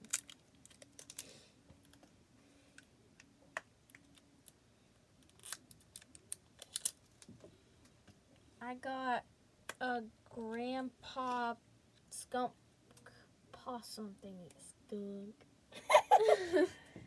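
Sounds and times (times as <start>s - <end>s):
packages crinkling and clicking: 0.0s - 3.3s, 5.2s - 7.5s.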